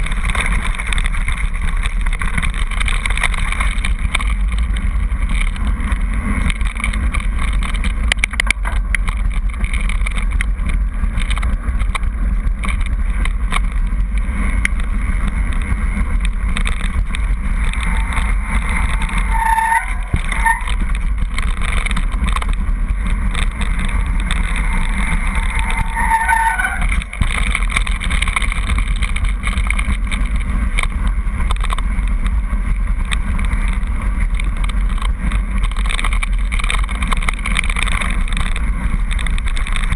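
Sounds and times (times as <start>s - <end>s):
bike tyres rumbling over gravel: 0.0s - 39.9s
wind buffeting microphone: 0.0s - 39.9s
brief high squeals: 25.4s - 27.2s.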